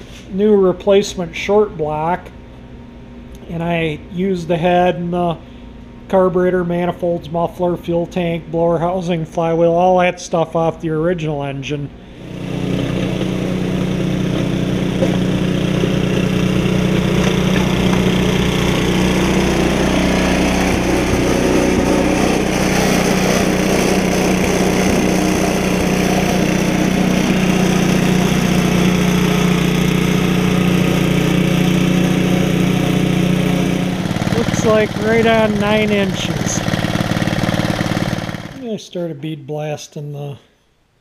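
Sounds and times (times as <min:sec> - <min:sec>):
snow blowing: 0:12.1 - 0:38.6
snow thrower engine running: 0:12.1 - 0:38.7.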